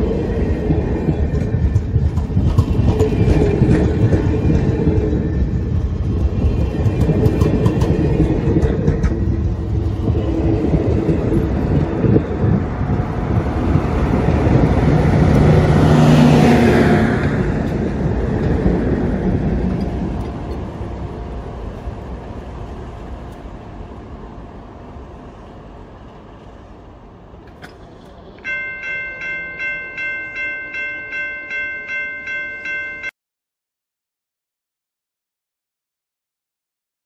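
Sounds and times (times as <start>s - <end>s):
diesel locomotive engine hum: 0.0s - 33.1s
train wheels rumbling: 0.0s - 33.1s
bell ringing: 28.4s - 33.2s.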